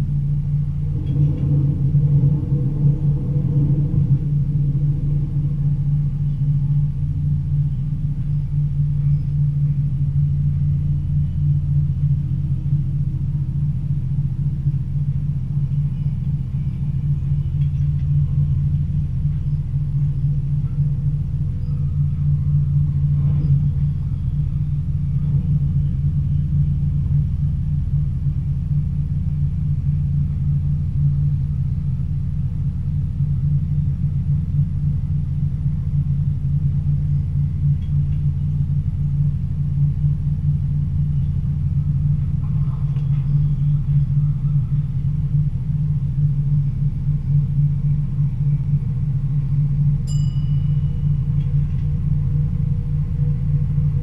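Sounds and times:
train running drone: 0.0s - 54.0s.

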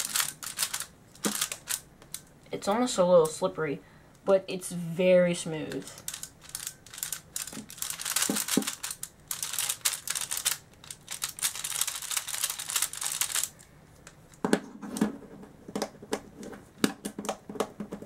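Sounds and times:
plastic puzzle cube clicking: 0.0s - 2.2s, 6.0s - 13.6s.

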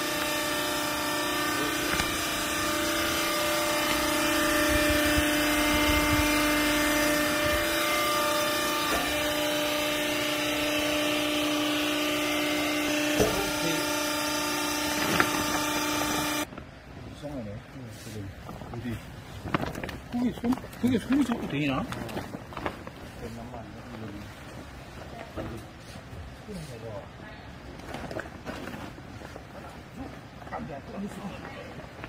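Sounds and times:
hydraulic pump motor humming: 0.0s - 16.5s.

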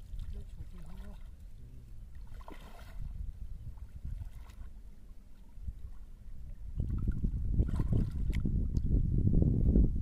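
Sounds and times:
wind rumble on microphone: 0.0s - 10.0s
water splashing around legs: 2.1s - 6.1s, 6.8s - 8.5s.

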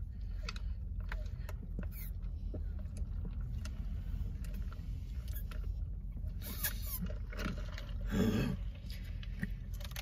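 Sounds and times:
low car cabin hum: 0.0s - 10.0s.

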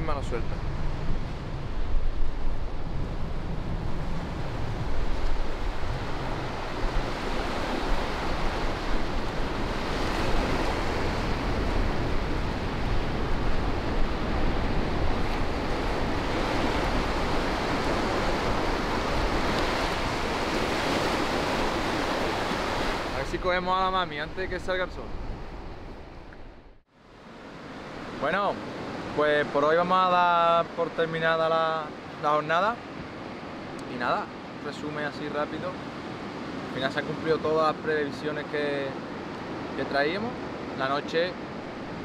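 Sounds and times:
surf breaking on beach: 0.0s - 25.5s
wind gusting on microphone: 0.0s - 29.5s, 38.7s - 42.0s.

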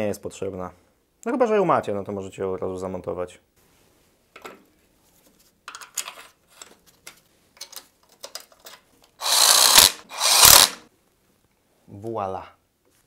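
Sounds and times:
cordless driver running: 9.2s - 10.8s.

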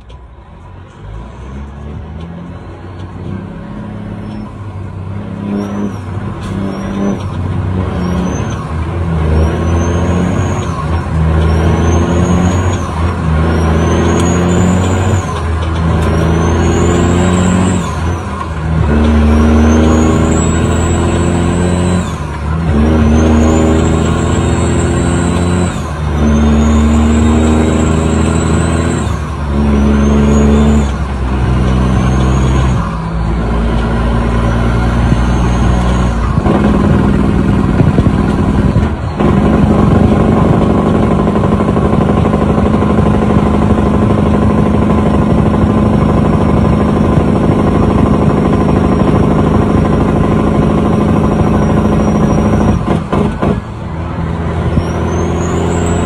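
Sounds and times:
truck diesel engine shifting gears: 0.0s - 56.0s
high rising whistle: 34.3s - 36.4s.

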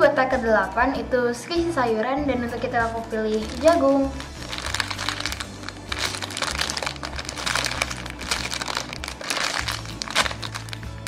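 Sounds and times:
background music with low bass: 0.0s - 11.0s
plastic bag crinkling: 2.8s - 11.0s.

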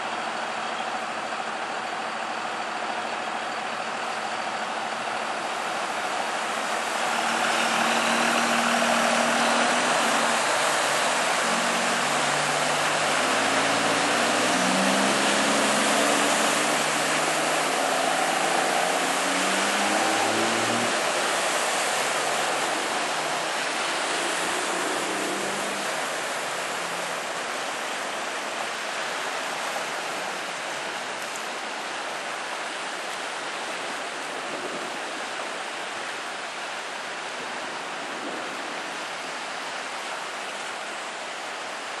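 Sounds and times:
truck engine hum: 0.0s - 31.5s
water splashing from vehicle wheels: 0.0s - 42.0s.

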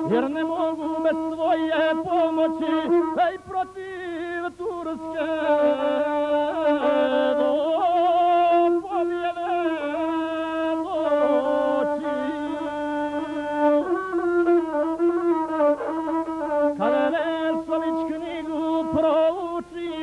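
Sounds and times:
bowed fiddle melody: 0.0s - 20.0s.

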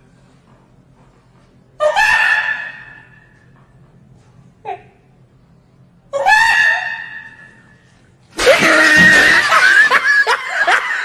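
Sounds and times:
shrieking screaming laughter: 8.4s - 11.0s.

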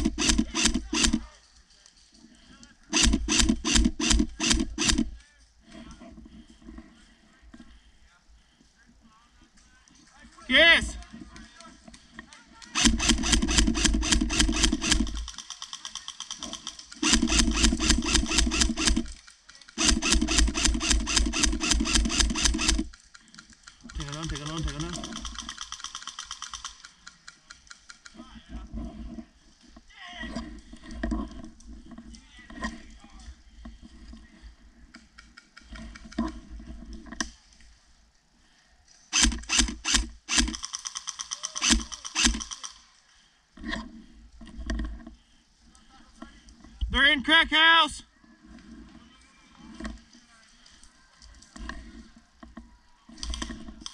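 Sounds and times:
airsoft rifle full-auto bursts: 0.0s - 1.3s, 2.9s - 5.2s, 12.6s - 23.0s, 23.8s - 27.1s, 39.1s - 42.9s.

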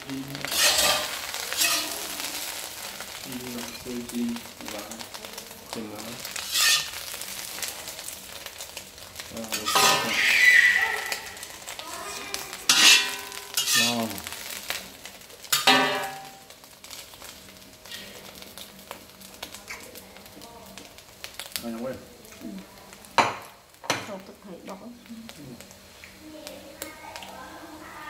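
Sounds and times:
food sizzling in a pan: 0.0s - 28.0s
utensil clinking against pan: 9.5s - 10.3s, 12.7s - 14.0s, 15.6s - 16.4s.

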